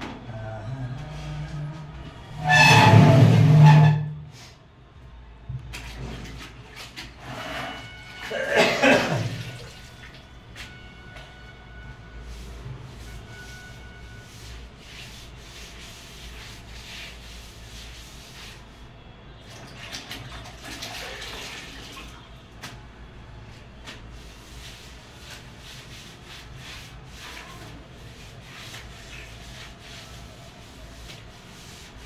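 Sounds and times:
cloth wiping concrete floor: 12.2 - 18.9, 23.5 - 32.0.

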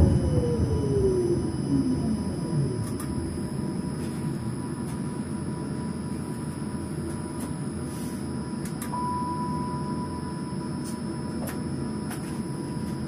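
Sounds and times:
low electrical hum: 0.0 - 13.0
steady single beep: 8.9 - 10.7.

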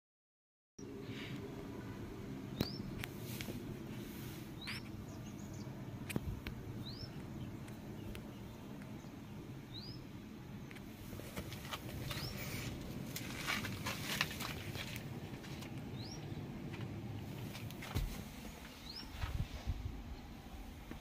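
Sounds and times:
steady low hum: 0.8 - 21.0
bird chirping: 2.5 - 3.1, 3.9 - 10.8, 12.0 - 12.7, 15.9 - 16.5, 18.7 - 19.2.

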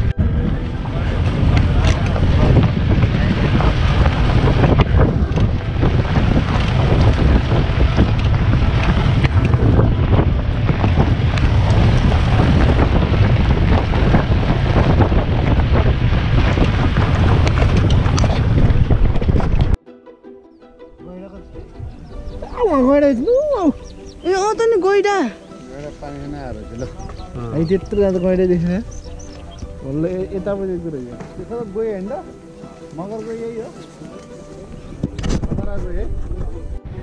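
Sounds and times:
vehicle engine rumble: 0.0 - 19.8
wind buffeting microphone: 0.0 - 19.8, 21.2 - 37.0.

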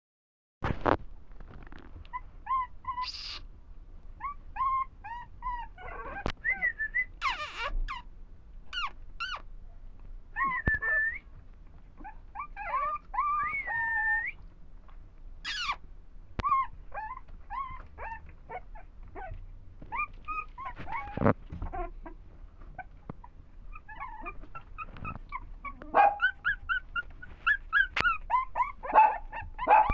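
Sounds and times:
puppies whining and yipping: 2.1 - 3.4, 4.2 - 8.1, 8.7 - 9.5, 10.4 - 11.2, 12.0 - 14.4, 15.4 - 15.8, 16.4 - 29.9.

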